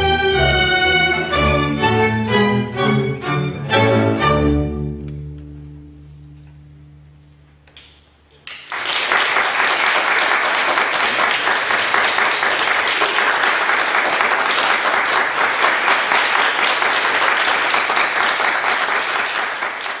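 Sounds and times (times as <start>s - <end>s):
audience applauding: 8.4s - 20.0s.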